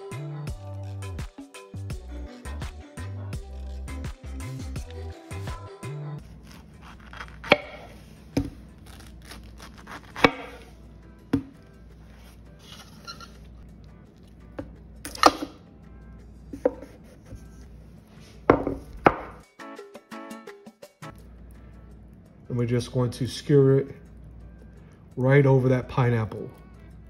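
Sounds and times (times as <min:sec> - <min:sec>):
quiet background music: 0:00.0 - 0:27.0
knife chopping on wooden board: 0:06.4 - 0:08.6, 0:09.4 - 0:10.7, 0:16.6 - 0:17.0, 0:18.5 - 0:19.4.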